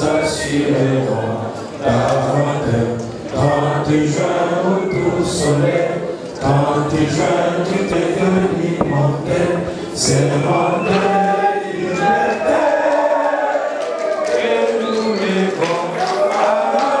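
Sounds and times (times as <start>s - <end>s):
man singing into a microphone: 0.0s - 12.8s
men singing in unison: 0.0s - 17.0s.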